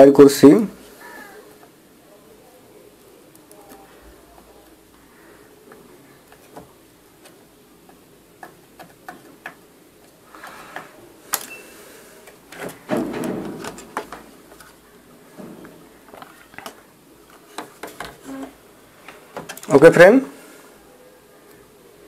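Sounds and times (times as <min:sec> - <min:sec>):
circuit board clattering: 0:06.2 - 0:10.1, 0:12.3 - 0:14.8.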